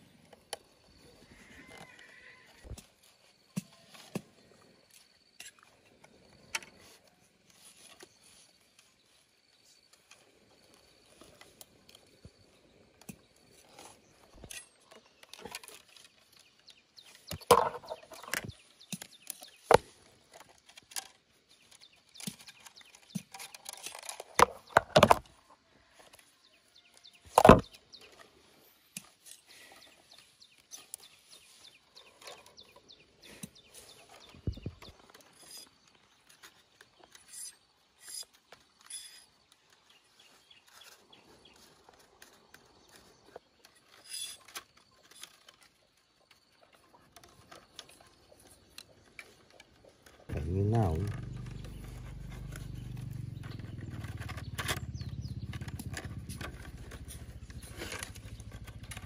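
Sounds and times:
bamboo strips rustling and clicking: 0.2 - 59.0
bamboo knocking on bamboo: 17.3 - 18.5, 27.3 - 27.7.

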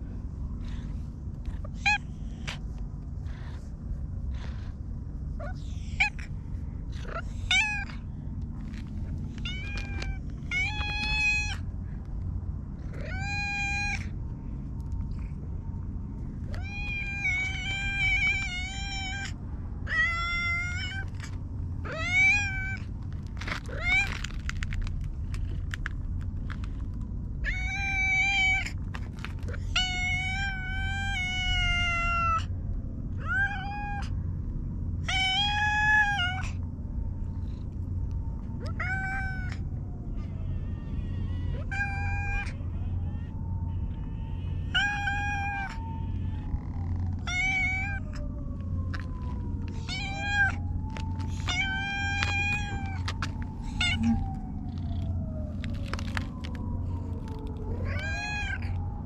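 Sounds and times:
steady low rumble: 0.0 - 59.0
cat meowing: 7.0 - 8.0, 9.1 - 11.7, 12.9 - 14.1, 16.5 - 22.9, 23.5 - 24.6, 27.4 - 28.7, 29.4 - 32.5, 35.1 - 36.6, 38.6 - 58.8.

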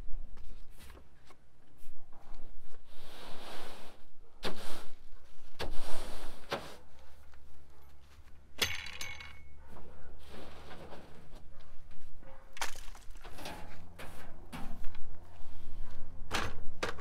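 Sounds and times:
broom bristles scraping: 2.7 - 7.2, 10.2 - 15.9.

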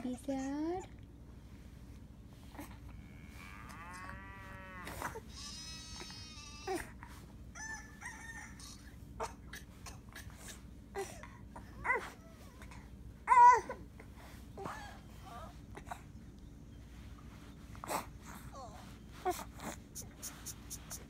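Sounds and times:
moo-like call from small speaker: 3.0 - 5.2
bleating call from small speaker: 5.3 - 6.7.

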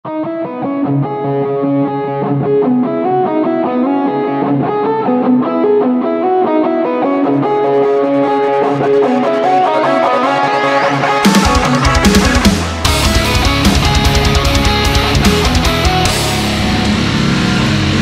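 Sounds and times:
electric guitar riff: 0.1 - 18.0.

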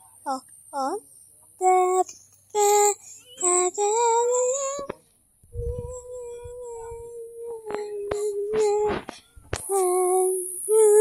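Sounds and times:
high voice singing: 1.6 - 5.0, 5.6 - 11.0.

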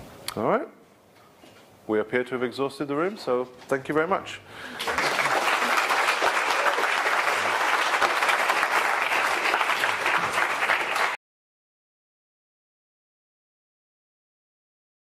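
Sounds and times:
audience applauding: 4.6 - 11.2.

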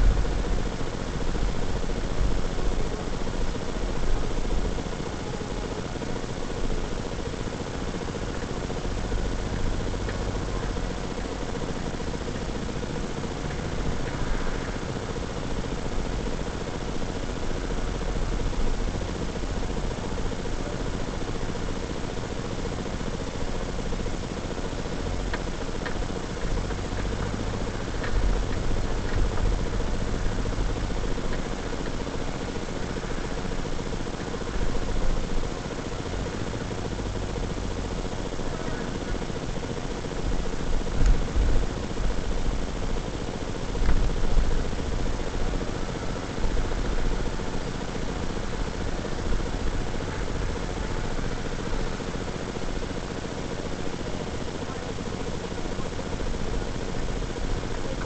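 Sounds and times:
constant hiss: 0.0 - 58.0
car engine and tyre rumble: 8.1 - 20.7, 24.9 - 39.2.

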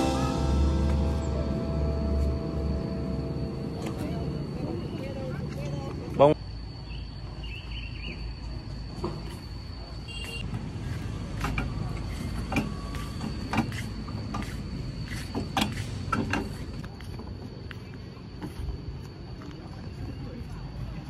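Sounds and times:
faint high tone: 0.0 - 5.4
low outdoor rumble: 0.0 - 6.2.

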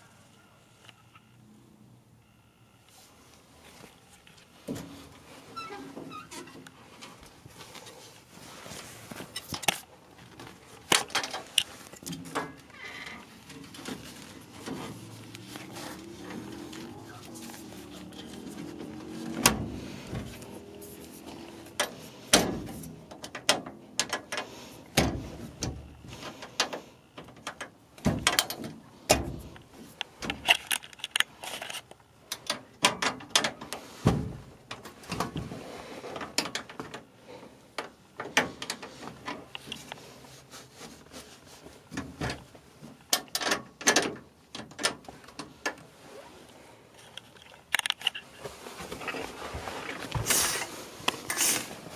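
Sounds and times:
knocks and clicks of handling: 9.1 - 37.1, 47.0 - 51.9.

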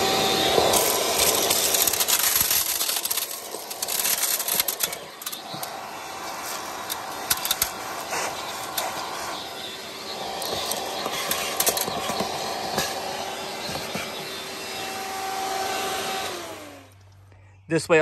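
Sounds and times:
broken glass pieces rattling: 0.7 - 5.7.

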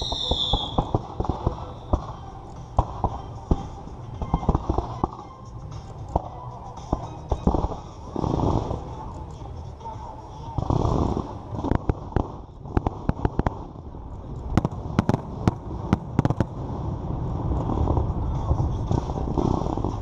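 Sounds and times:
fireworks cracks and bangs: 0.0 - 5.3, 10.5 - 20.0
fireworks low rumble: 0.0 - 20.0.

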